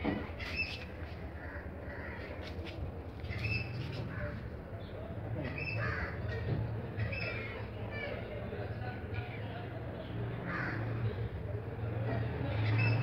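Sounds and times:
birds calling: 0:00.2 - 0:02.6, 0:03.2 - 0:07.7.

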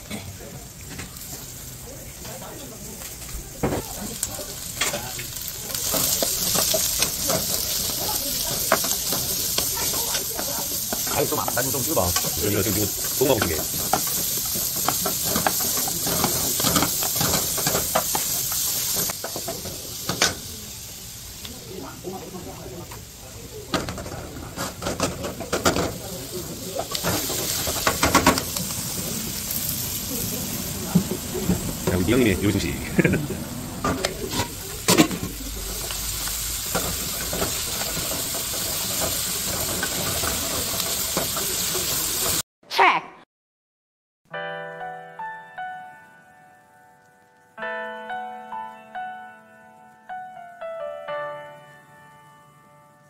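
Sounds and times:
vegetables sizzling in oil: 0:00.0 - 0:42.4
wooden spatulas scraping a pan: 0:05.8 - 0:19.7, 0:33.8 - 0:42.4.

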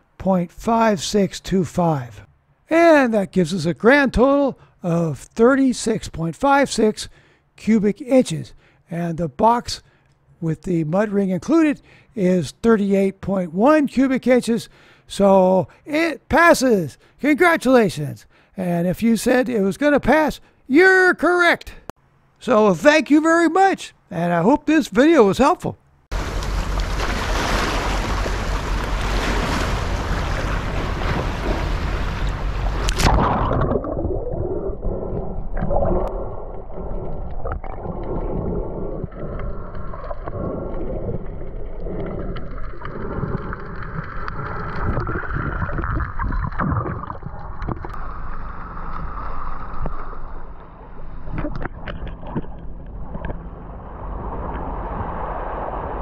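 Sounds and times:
muffled underwater churning: 0:26.1 - 0:56.0
loud rushing water hiss: 0:26.2 - 0:32.9
underwater gurgles and knocks: 0:26.2 - 0:55.7.

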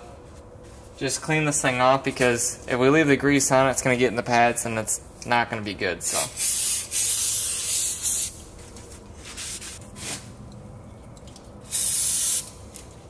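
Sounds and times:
aerosol can hissing: 0:06.4 - 0:08.4, 0:11.7 - 0:12.6.

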